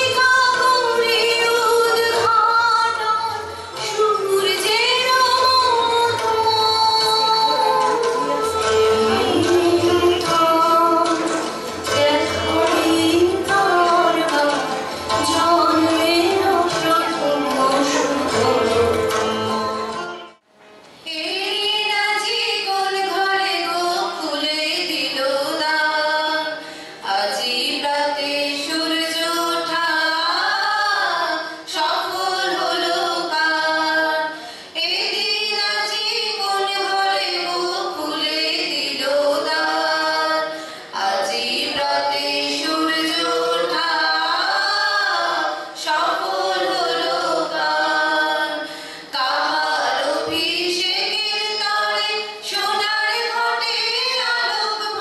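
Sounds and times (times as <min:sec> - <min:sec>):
group singing through microphones: 0:03.7 - 0:20.3, 0:28.5 - 0:55.0.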